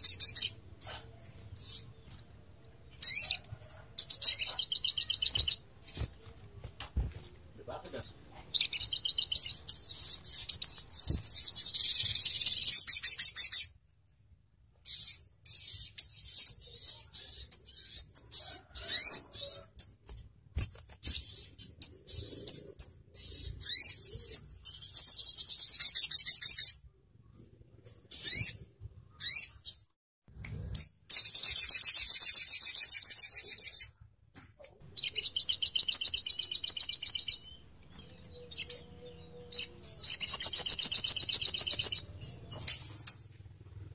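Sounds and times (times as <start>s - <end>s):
bird rapid high trills: 35.0s - 37.6s, 39.5s - 43.4s.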